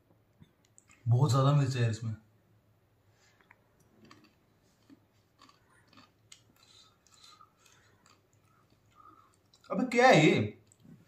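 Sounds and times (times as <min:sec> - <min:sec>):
chip crunching: 0:03.4 - 0:09.8.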